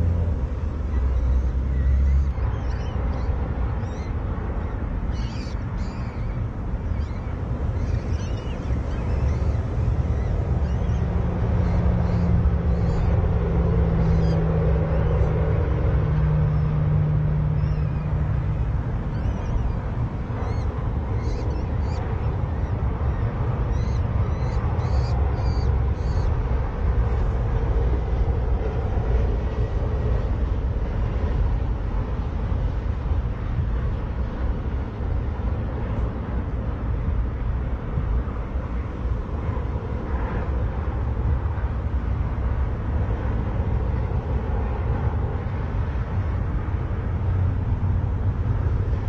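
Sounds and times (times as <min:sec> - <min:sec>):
high bird chirps: 0:01.0 - 0:11.0, 0:23.7 - 0:26.3.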